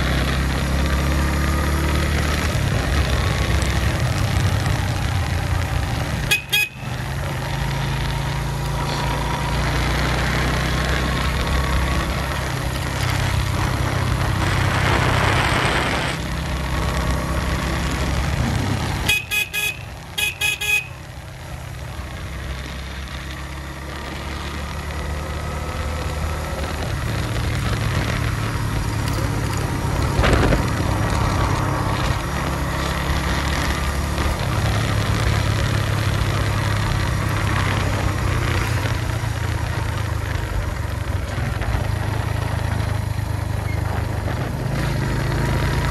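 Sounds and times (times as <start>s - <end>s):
motorcycle engine running: 0.0s - 45.9s
horn beeps: 6.2s - 7.0s, 19.0s - 21.0s.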